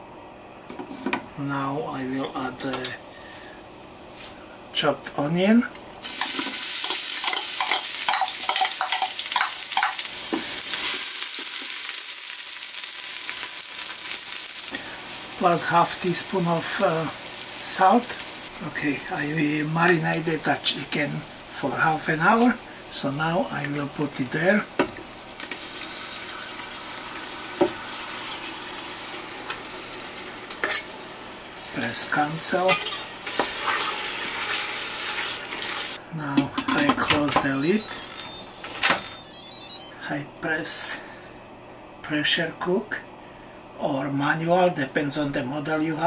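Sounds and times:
onion sizzling in hot fat: 6.0 - 36.0.

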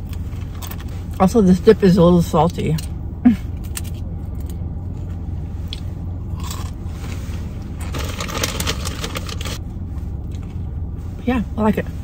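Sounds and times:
car interior hum: 0.0 - 12.0
chips crunching: 5.7 - 6.8, 7.6 - 9.6.

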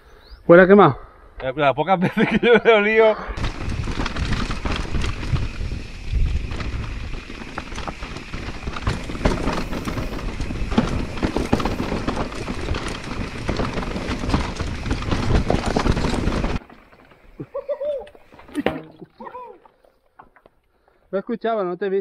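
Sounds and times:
bike wheels knocking on rocks: 3.4 - 19.1.

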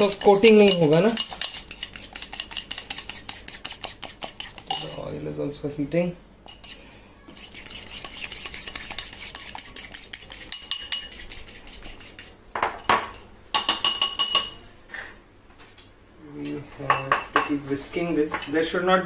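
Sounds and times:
fork clinking against glass bowl: 0.0 - 5.0, 7.9 - 11.3.

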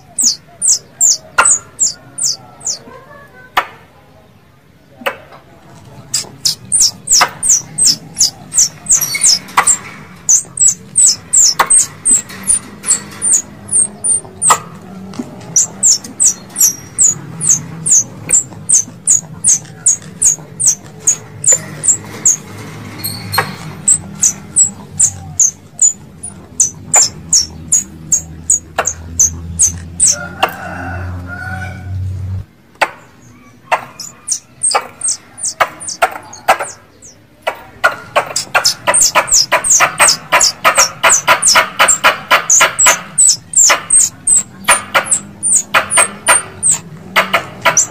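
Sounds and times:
squirrel call chips: 0.0 - 2.8, 6.1 - 14.8, 15.4 - 22.4, 23.1 - 30.2, 33.8 - 37.2, 38.2 - 47.9.

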